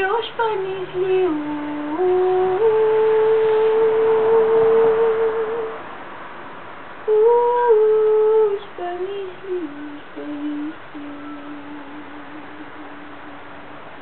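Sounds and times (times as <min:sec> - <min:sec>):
woman singing wordless tune: 0:00.0 - 0:06.0, 0:07.0 - 0:13.7.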